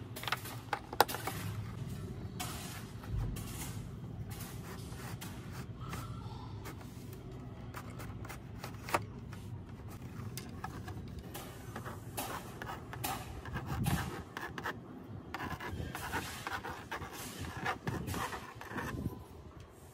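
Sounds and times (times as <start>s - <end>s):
pen scratching on drawing slate: 4.4s - 19.2s.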